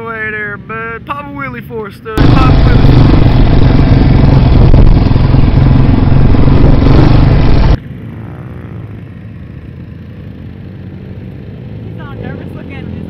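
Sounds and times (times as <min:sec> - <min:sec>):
dirt bike engine close: 0:02.2 - 0:09.2
distant dirt bike engine: 0:02.2 - 0:13.0.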